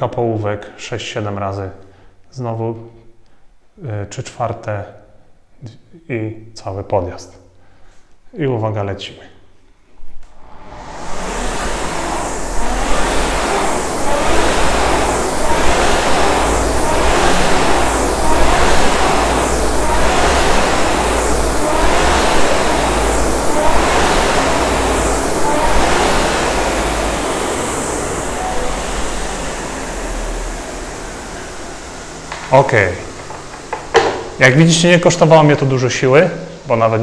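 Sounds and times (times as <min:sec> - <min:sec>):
low rumble: 0:10.1 - 0:34.6
rowing machine flywheel whooshing: 0:10.1 - 0:35.5.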